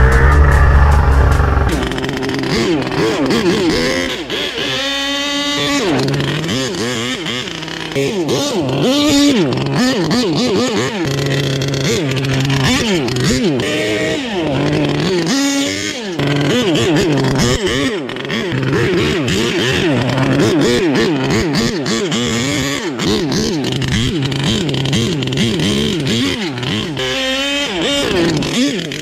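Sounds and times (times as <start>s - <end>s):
small engine revving: 0.0s - 29.0s.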